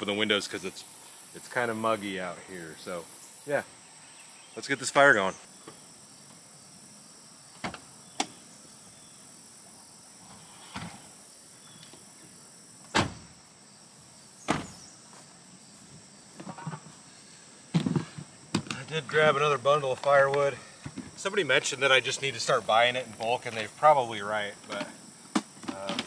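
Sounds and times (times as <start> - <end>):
insects chirping: 0.0 - 26.0
truck door slamming: 12.9 - 13.4, 14.4 - 14.9
footsteps: 14.6 - 17.0.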